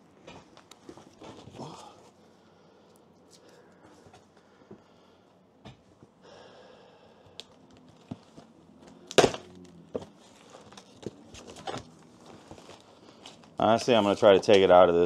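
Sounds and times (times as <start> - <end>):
cardboard box loud crack: 9.0 - 10.1.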